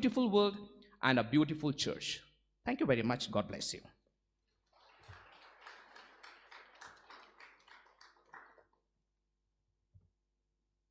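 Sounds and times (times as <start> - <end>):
audience applause: 4.7 - 8.8.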